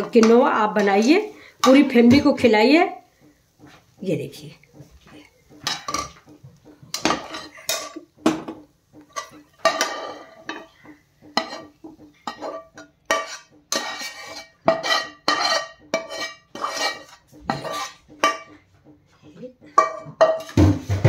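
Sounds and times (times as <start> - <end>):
metal spatula scraping a pan: 0.0 - 2.6, 6.9 - 8.2, 9.0 - 18.6, 19.7 - 21.0.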